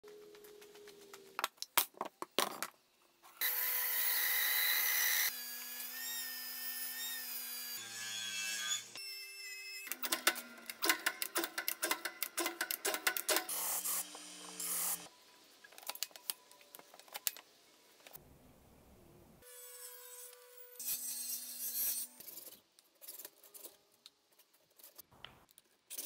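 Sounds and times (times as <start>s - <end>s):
bandsaw cutting wood: 13.2s - 15.1s.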